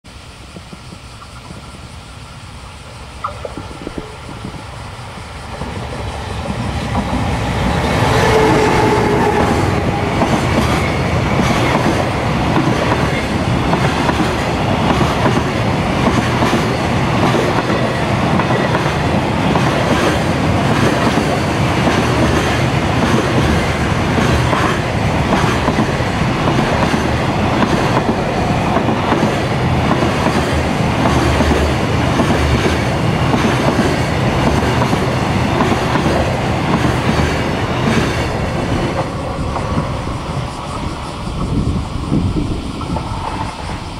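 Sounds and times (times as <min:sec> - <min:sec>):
freight train passing: 0:00.0 - 0:43.9
wheels clacking over rail joints: 0:05.5 - 0:40.5.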